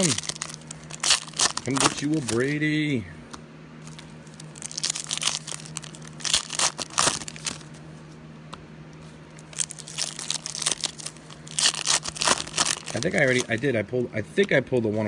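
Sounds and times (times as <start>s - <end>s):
foil wrappers crinkling and tearing: 0.0s - 2.8s, 3.8s - 7.8s, 9.4s - 14.6s.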